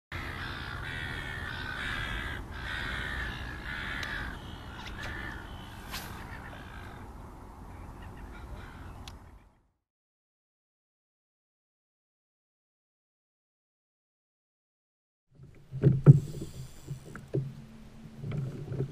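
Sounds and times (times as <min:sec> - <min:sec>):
crows cawing: 0:00.1 - 0:09.1.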